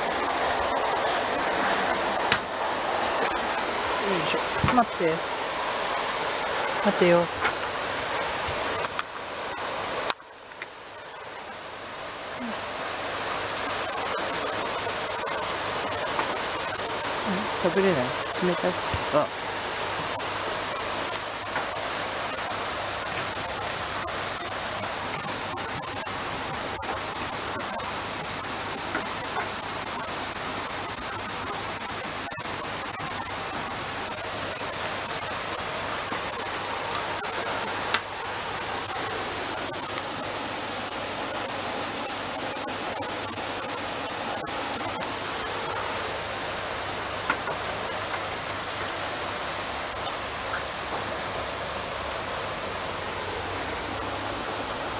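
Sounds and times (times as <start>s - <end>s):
high-pitched hiss: 0.0s - 54.9s.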